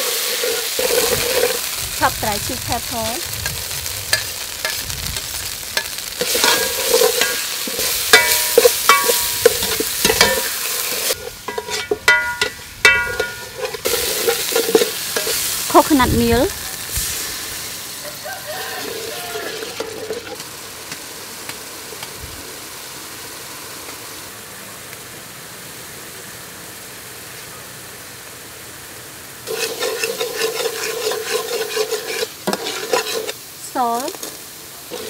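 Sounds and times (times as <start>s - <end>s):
curry hissing in pot: 0.0s - 35.0s
ladle scraping metal pot: 0.3s - 1.7s, 5.8s - 15.8s, 18.8s - 20.4s, 29.5s - 33.4s.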